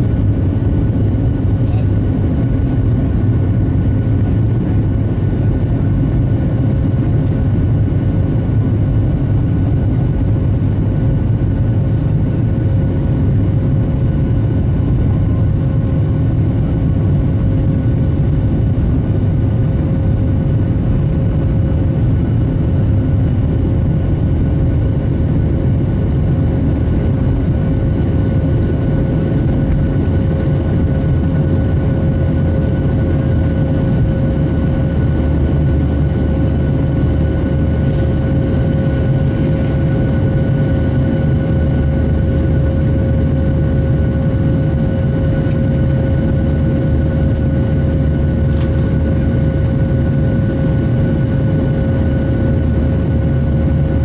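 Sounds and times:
jet engines rumbling and whining: 0.0 - 54.0.

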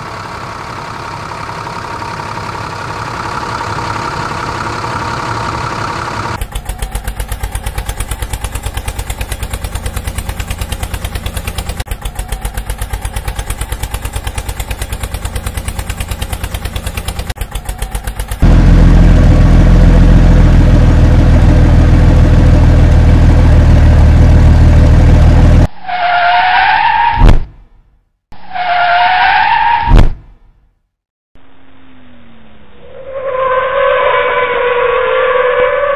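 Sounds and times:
deep engine rumble: 0.0 - 25.7
engine putt-putt: 0.0 - 25.7.

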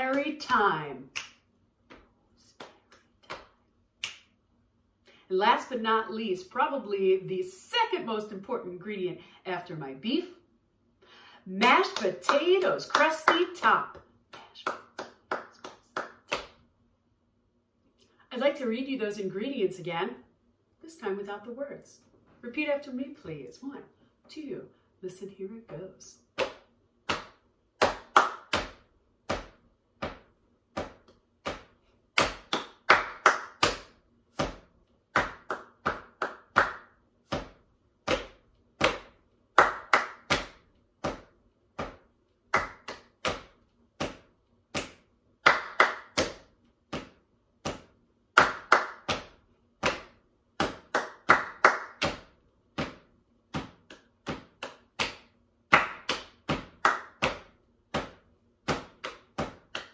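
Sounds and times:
hand claps in rhythm: 0.0 - 4.3, 11.6 - 16.6, 26.3 - 59.9.

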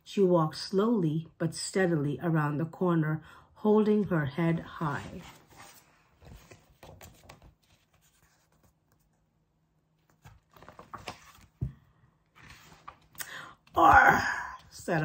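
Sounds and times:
book pages riffling: 5.0 - 9.1, 10.0 - 13.2.

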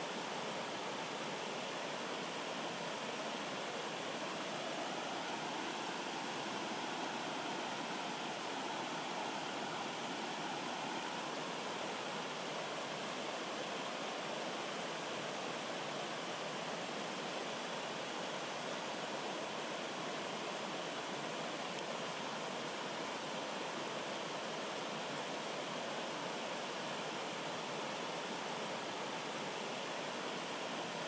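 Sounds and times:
stream rushing over rocks: 0.0 - 31.0.

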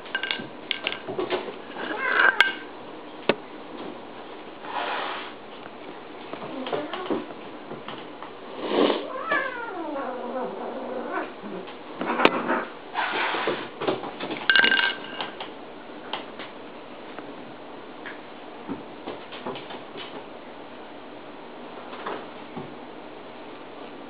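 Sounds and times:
cat yowling: 1.8 - 2.6, 9.0 - 12.7.

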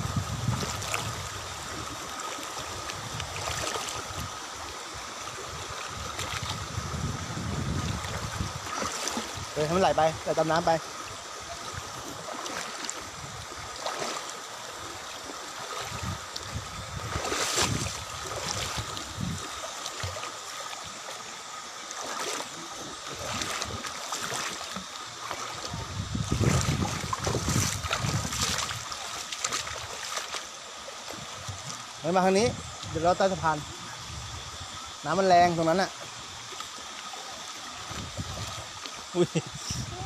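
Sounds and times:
stream running over stones: 0.0 - 40.0
child splashing in water: 17.1 - 18.8.

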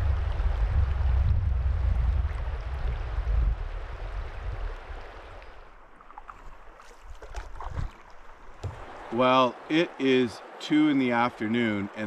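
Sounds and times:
creek water running: 0.0 - 12.0
light knocks: 8.6 - 8.9.

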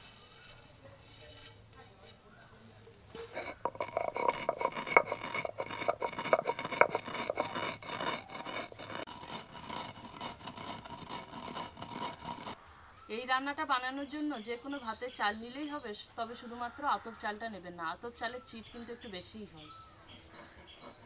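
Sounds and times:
rice grains grinding: 3.2 - 12.6.

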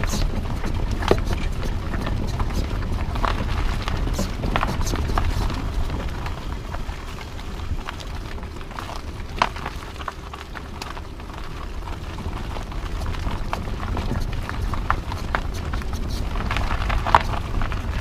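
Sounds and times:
car tyres rolling on gravel: 0.0 - 18.0
gravel ticking against car: 0.0 - 18.0.

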